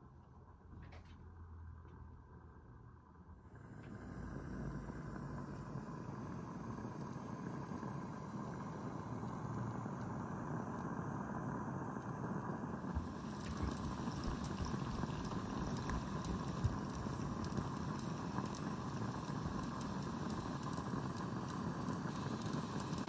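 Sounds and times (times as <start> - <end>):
steam hissing: 3.6 - 23.0.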